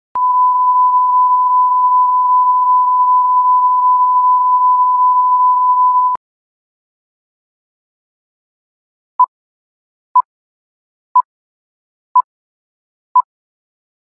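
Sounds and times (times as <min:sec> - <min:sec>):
steady test tone beep: 0:00.2 - 0:06.2.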